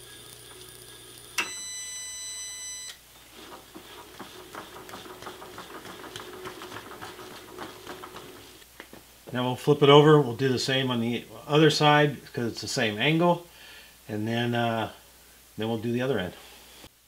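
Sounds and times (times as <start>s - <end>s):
clicks and knocks of hands working: 3.4s - 9.0s.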